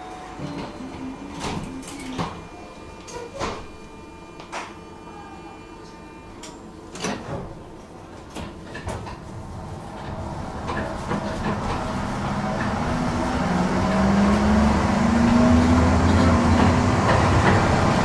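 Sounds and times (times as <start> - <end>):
tram running noise: 6.4 - 18.0.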